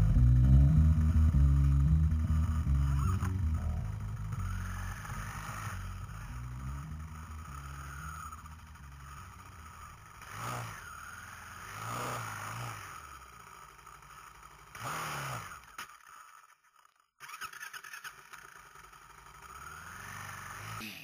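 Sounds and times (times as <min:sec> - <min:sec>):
engine throttle blips: 0:00.0 - 0:15.7
atv engine running: 0:00.0 - 0:16.2, 0:17.4 - 0:20.8.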